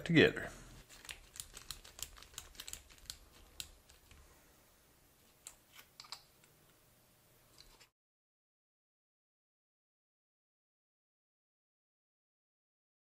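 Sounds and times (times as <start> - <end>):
small metal toy parts clicking: 0.9 - 4.2.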